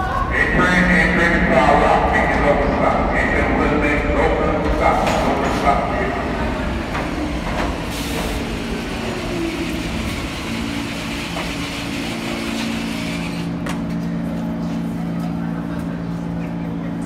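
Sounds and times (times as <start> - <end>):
subway train whining to a stop: 0.0 - 17.0
train low hum: 0.0 - 17.0.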